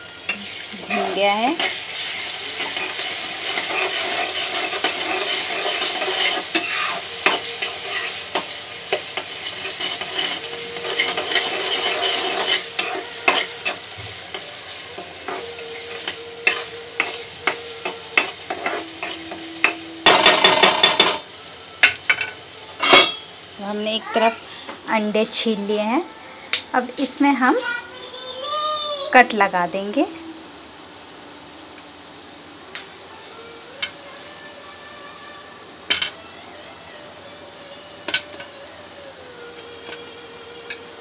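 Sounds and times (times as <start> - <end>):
masala sizzling in a pan: 0.0 - 41.0
spoon tapping and scraping pan: 2.6 - 14.5, 15.2 - 21.2.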